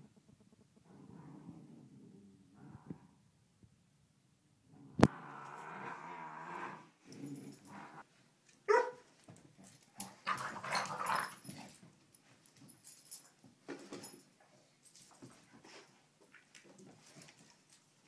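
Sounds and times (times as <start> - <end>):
dogs play growling: 0.8 - 3.2, 4.7 - 8.0, 9.6 - 11.9
dog yipping: 8.7 - 9.0.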